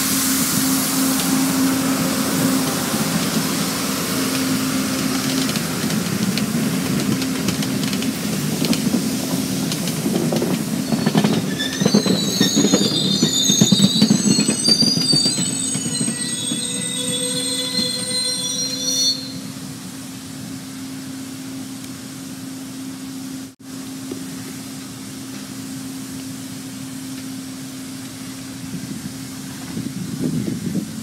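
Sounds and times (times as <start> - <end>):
train wheels rumbling on rail: 0.0 - 31.0
clicking over rail joints: 4.3 - 11.5
high-pitched wheel squeal: 10.8 - 19.7.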